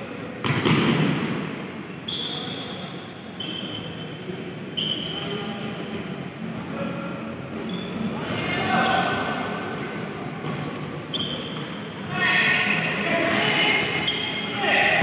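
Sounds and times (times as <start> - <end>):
echoing hum of play: 0.0 - 15.0
ball struck with echoing thud: 0.4 - 1.5
shoes squeaking on wooden court: 2.1 - 4.1, 4.8 - 6.3, 7.5 - 9.2, 10.3 - 12.0, 13.9 - 14.6.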